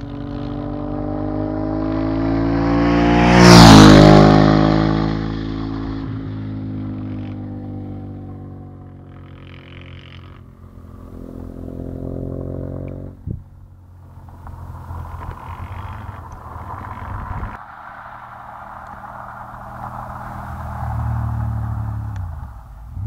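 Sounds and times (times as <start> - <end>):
motorcycle engine revving: 0.0 - 17.6.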